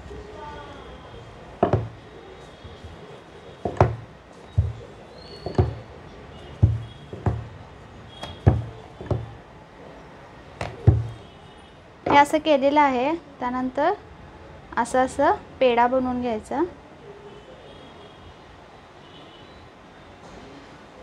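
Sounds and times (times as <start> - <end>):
short wooden knock: 1.6 - 2.0, 3.6 - 5.8, 6.6 - 7.5, 8.2 - 9.4, 10.6 - 11.2
rolling pin rolling dough: 1.6 - 9.4, 10.6 - 11.2.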